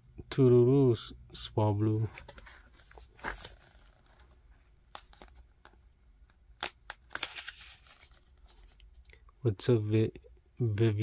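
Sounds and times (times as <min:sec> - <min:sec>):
cardboard book pages rustling: 0:02.0 - 0:05.8, 0:06.6 - 0:09.0.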